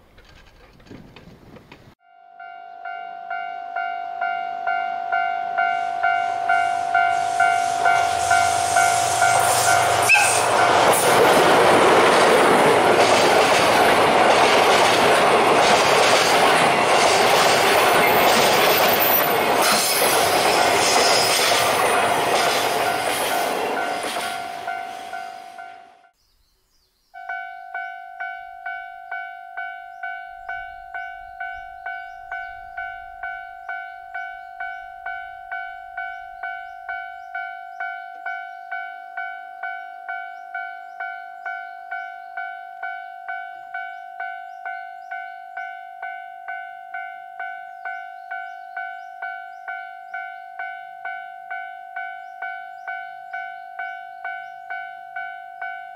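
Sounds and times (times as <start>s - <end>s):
level crossing warning bell: 2.0s - 15.8s, 16.4s - 26.2s, 27.2s - 55.9s
freight train rumbling past: 3.8s - 26.1s
faint birdsong: 24.9s - 28.8s, 29.6s - 46.2s, 47.4s - 50.5s, 52.0s - 55.8s.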